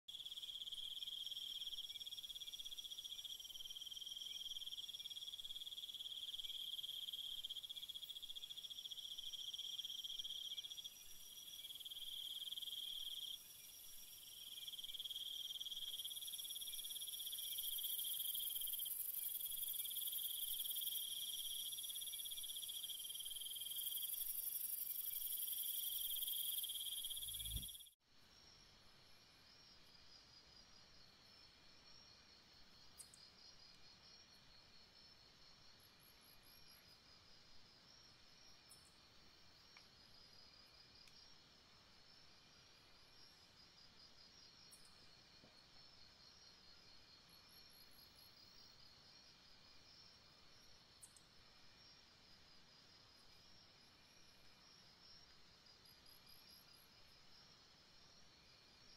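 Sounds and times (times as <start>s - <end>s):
insects trilling: 0.1s - 27.9s.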